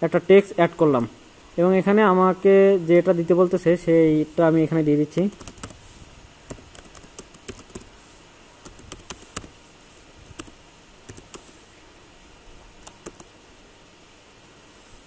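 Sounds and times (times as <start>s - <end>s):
computer keyboard typing clicks: 5.3s - 5.8s, 6.5s - 7.9s, 8.6s - 9.5s, 10.2s - 11.5s, 12.8s - 13.3s.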